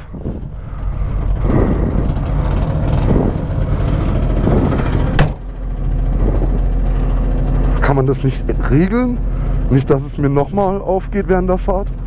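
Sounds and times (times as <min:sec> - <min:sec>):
small two-stroke engine idling: 0:00.0 - 0:12.0.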